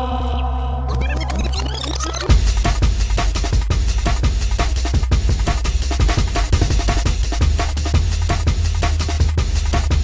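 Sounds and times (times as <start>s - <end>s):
heavy sub-bass line: 0.0s - 10.0s
fast breakbeat drums: 2.2s - 10.0s.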